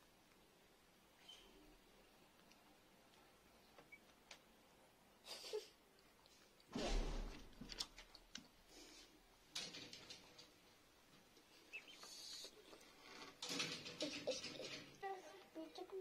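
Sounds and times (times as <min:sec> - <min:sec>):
chick peeping: 0:11.7 - 0:12.5.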